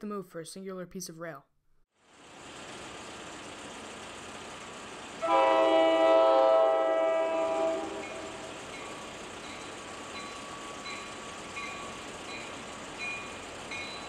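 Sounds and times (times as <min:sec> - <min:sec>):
train rumbling: 0:02.3 - 0:14.0
locomotive horn blast: 0:05.2 - 0:08.6.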